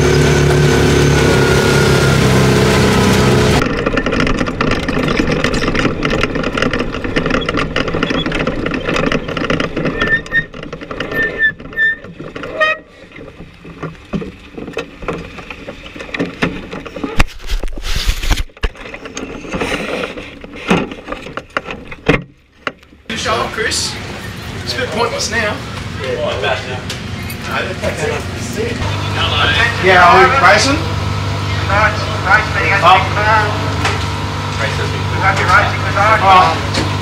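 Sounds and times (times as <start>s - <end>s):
race car engine running at low revs: 0.0s - 9.7s, 25.4s - 37.0s
knocks and thumps around car: 3.6s - 17.6s, 18.4s - 23.1s.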